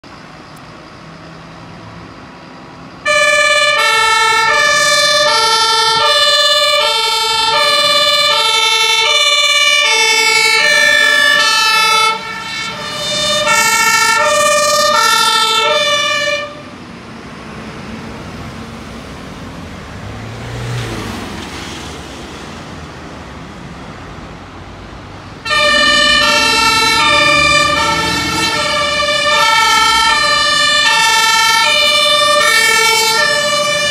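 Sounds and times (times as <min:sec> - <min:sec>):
road traffic: 0:00.0 - 0:33.9
two-tone fire engine sirens: 0:02.8 - 0:19.1, 0:24.5 - 0:33.9
vehicle passing: 0:02.8 - 0:33.9.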